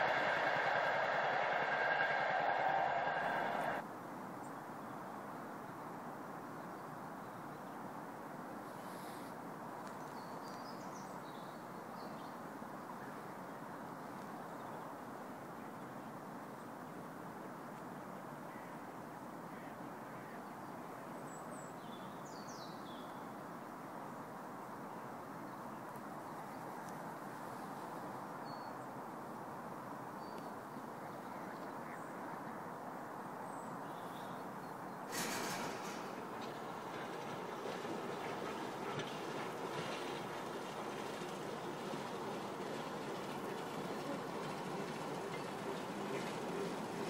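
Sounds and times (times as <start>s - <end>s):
steady distant background noise: 0.0s - 6.4s, 23.4s - 47.0s
outdoor background noise: 0.0s - 47.0s.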